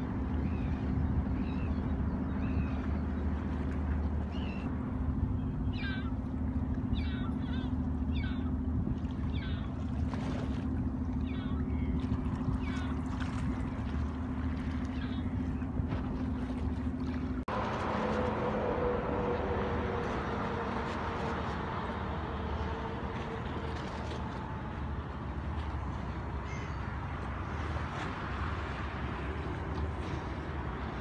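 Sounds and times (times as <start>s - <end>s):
choppy water: 0.0s - 31.0s
small boat engine running: 0.0s - 31.0s
wind: 0.0s - 31.0s
bird calls: 0.4s - 4.7s, 5.4s - 8.6s, 9.2s - 9.9s, 11.1s - 15.8s, 26.4s - 26.9s.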